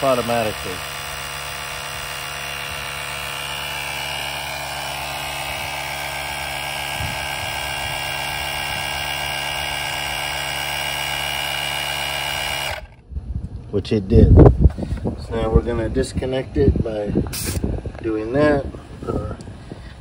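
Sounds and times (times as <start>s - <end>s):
air compressor buzzing: 0.0s - 13.0s, 17.2s - 18.0s.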